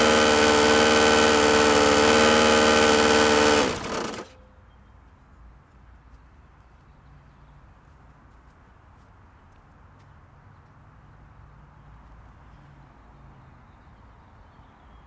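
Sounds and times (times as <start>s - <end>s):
lawn mower engine buzzing: 0.0s - 4.4s.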